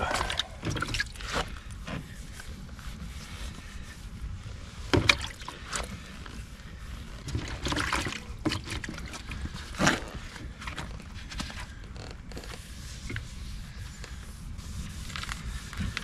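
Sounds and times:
sandpaper rubbing on plastic: 12.4 - 16.0.

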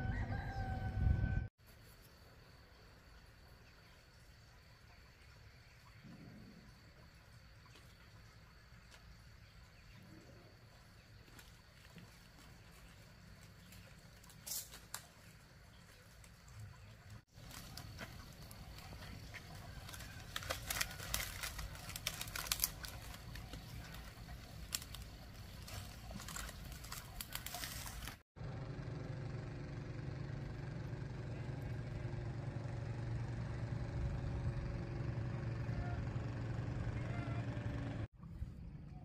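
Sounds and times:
fire crackling in dry leaves: 11.2 - 16.4, 17.2 - 28.2.

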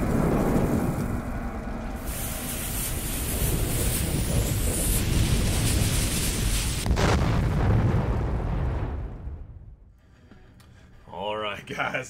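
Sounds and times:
rushing hiss of fire: 0.0 - 8.0
low fire rumble: 0.0 - 11.1.

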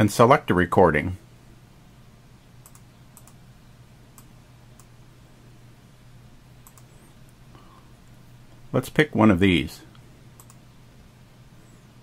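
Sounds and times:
low steady hum: 0.0 - 12.0
computer mouse clicking: 2.6 - 3.4, 4.2 - 4.9, 6.6 - 7.0, 10.4 - 10.6.

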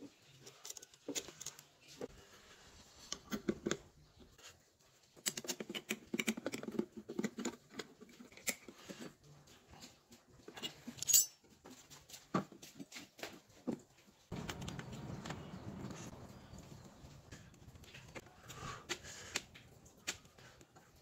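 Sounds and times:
small metal parts clicking and rattling: 0.2 - 1.9, 10.5 - 11.6.

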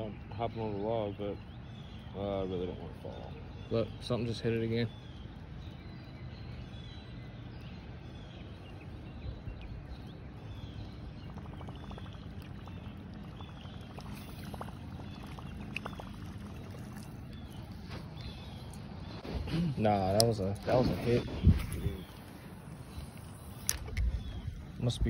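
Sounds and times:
light water splashing: 8.5 - 19.3
wind on microphone: 20.5 - 25.0.

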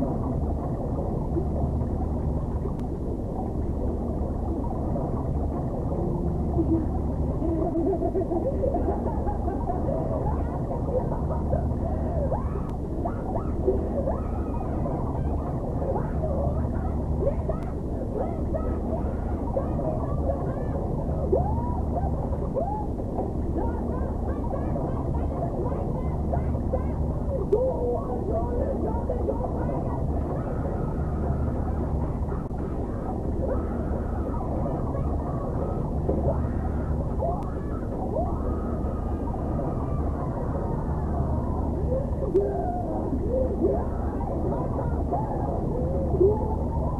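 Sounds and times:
steady low rumble: 0.0 - 46.9.

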